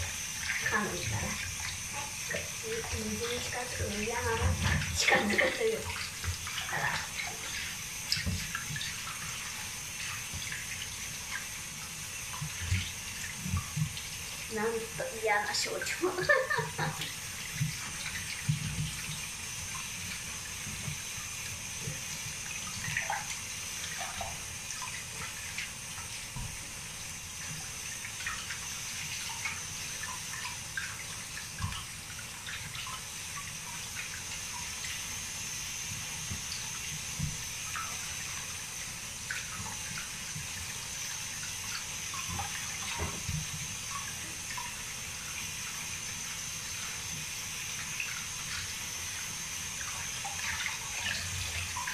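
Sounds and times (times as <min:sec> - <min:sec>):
tap water running into basin: 0:00.0 - 0:51.9
small water splashes: 0:49.8 - 0:51.9.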